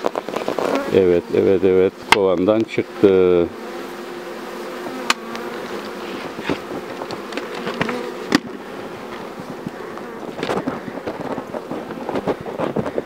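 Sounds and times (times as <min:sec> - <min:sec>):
bees buzzing: 0:00.0 - 0:13.0.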